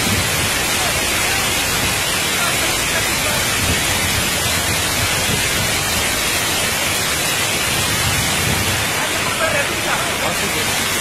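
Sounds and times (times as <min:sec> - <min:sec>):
flood torrent rushing over rocks: 0:00.0 - 0:11.0.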